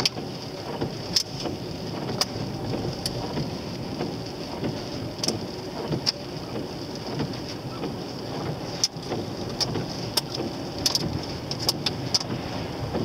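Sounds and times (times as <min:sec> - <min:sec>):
car road and engine noise: 0:00.0 - 0:13.0
rain ticking on windscreen: 0:00.0 - 0:13.0.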